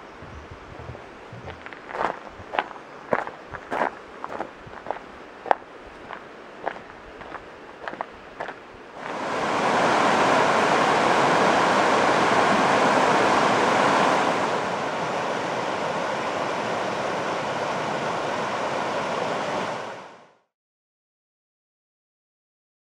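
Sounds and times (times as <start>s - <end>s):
river rushing over rocks: 4.0s - 20.3s.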